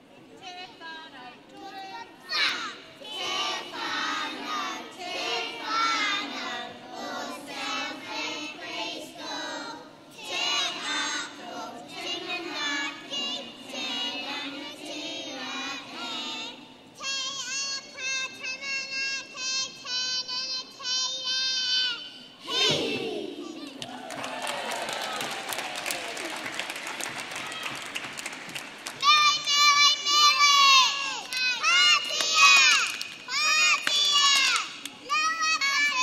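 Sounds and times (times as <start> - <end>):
children singing together: 1.6 - 23.7.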